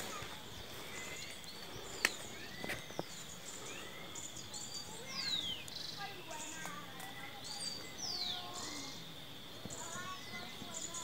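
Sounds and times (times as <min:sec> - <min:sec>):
birds chirping and whistling: 0:00.0 - 0:11.0
high-pitched insect hum: 0:00.0 - 0:11.0.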